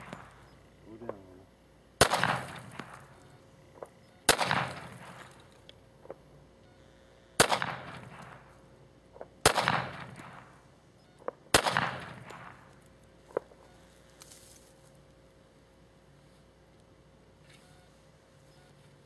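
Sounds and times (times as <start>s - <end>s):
pistol shots echoing: 0.0s - 1.2s, 2.0s - 6.2s, 7.4s - 8.6s, 9.2s - 12.8s.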